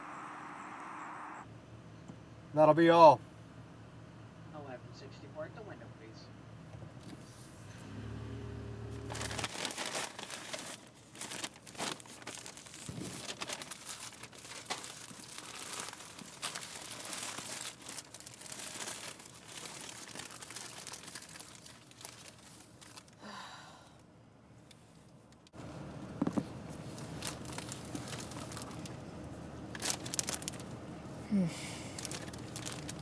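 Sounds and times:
low hum: 0.0 - 2.4
paper bag and wrappers crinkling: 9.1 - 23.2, 26.3 - 29.0, 29.7 - 30.8, 31.5 - 33.0.

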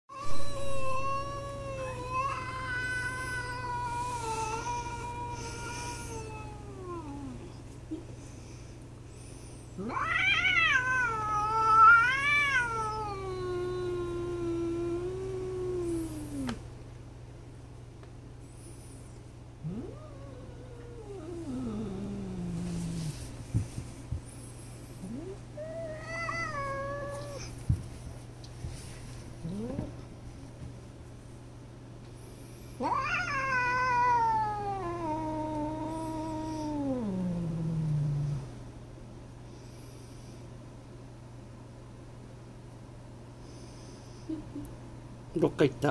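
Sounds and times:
cat yowling: 0.1 - 7.4, 9.8 - 16.6, 25.0 - 27.5, 32.8 - 38.4.

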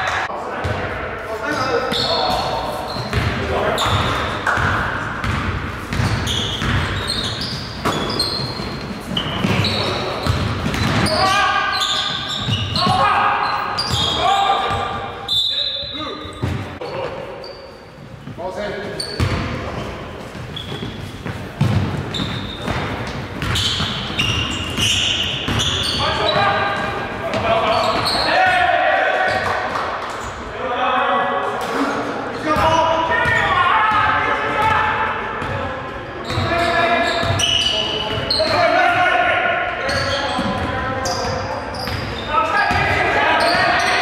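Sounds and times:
sneaker squeaks: 1.5 - 30.5, 31.7 - 34.0, 35.4 - 38.9, 39.8 - 44.0
basketball bouncing on court: 2.0 - 11.4, 13.8 - 15.0, 19.0 - 19.6, 20.3 - 28.3, 35.4 - 35.6, 36.2 - 38.6, 39.9 - 43.8
basketball bouncing on hardwood: 9.4 - 11.1, 21.6 - 24.0.

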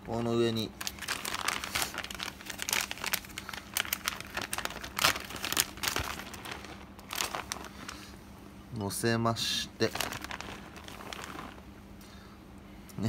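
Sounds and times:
plastic bag crinkling: 0.4 - 8.2, 9.4 - 11.8.

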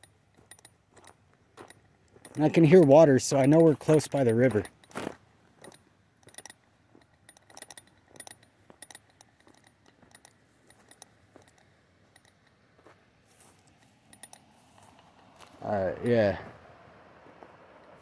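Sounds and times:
camera lens rattling: 0.0 - 0.7, 2.1 - 12.5, 13.6 - 14.4.

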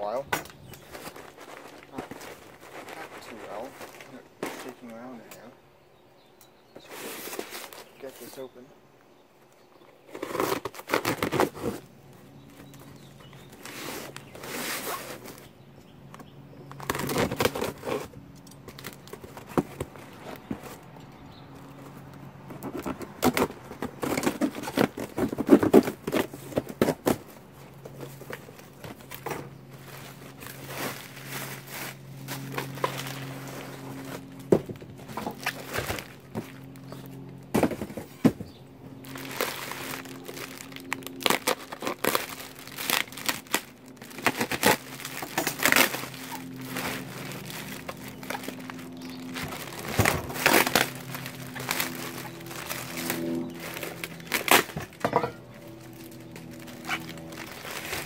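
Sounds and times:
plastic packing crinkling: 22.5 - 37.9, 39.0 - 58.0
cardboard box knocks and scrapes: 37.5 - 38.6.

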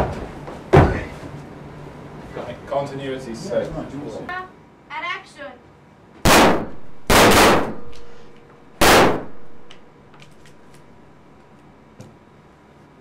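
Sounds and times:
pistol shots: 6.3 - 8.1, 8.8 - 9.8
gun handling clicks: 9.7 - 10.9.

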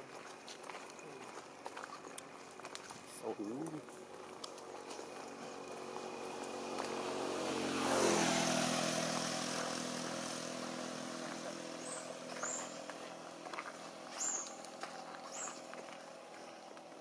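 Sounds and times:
passing vehicle engine: 3.1 - 17.0.

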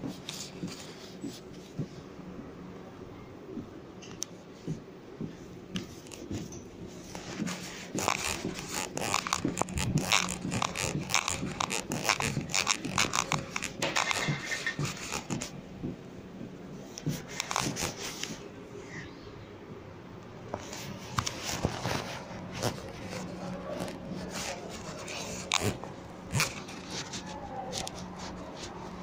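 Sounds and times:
clothing rustling on microphone: 0.0 - 2.1, 4.2 - 18.6, 20.5 - 29.0
footsteps: 4.6 - 18.5, 20.5 - 29.0.

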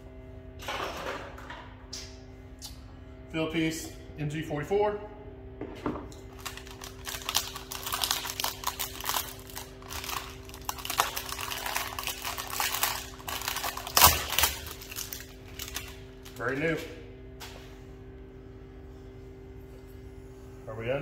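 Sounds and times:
plastic wrapper crinkling and tearing: 6.3 - 16.5.

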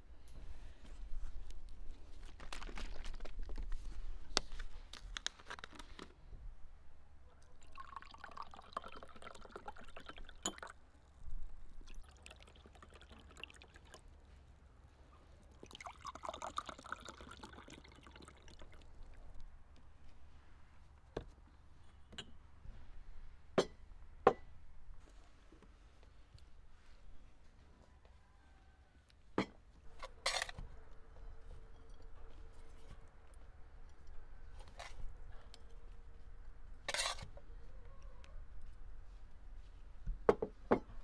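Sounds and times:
juice pouring into glass: 7.6 - 10.8, 11.8 - 14.0, 15.6 - 19.0.

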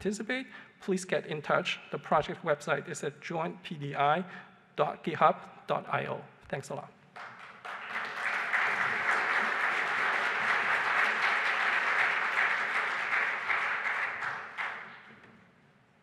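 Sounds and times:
audience applauding: 7.2 - 15.2.

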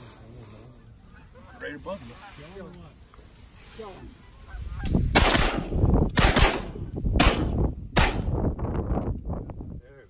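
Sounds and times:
goose honking: 0.8 - 2.6, 4.1 - 5.0
shotgun shots: 5.1 - 8.4.

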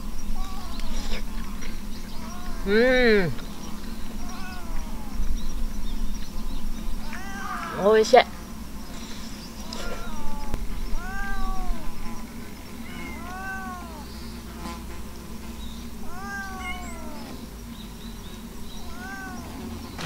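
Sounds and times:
cat meowing: 0.4 - 1.0, 2.2 - 2.7, 4.2 - 5.3, 7.0 - 8.0, 9.6 - 12.0, 12.8 - 14.1, 16.0 - 17.4, 18.8 - 19.6.

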